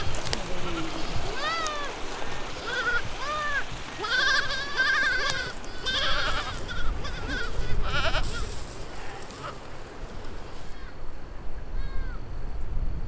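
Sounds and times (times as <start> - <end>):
goats bleating: 0.0 - 9.8.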